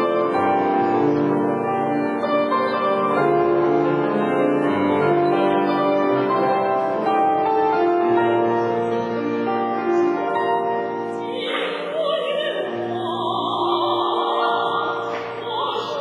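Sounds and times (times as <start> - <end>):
grand piano chords and melody: 0.0 - 16.0.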